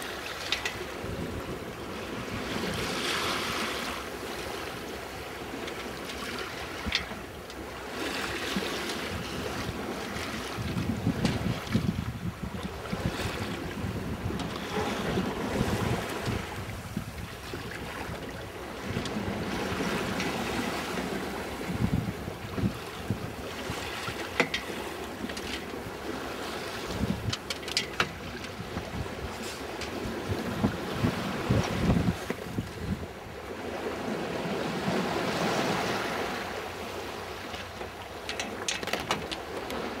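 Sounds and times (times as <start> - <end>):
water washing against boat hull: 0.0 - 33.1, 34.7 - 40.0
wind buffeting microphone: 9.0 - 36.4.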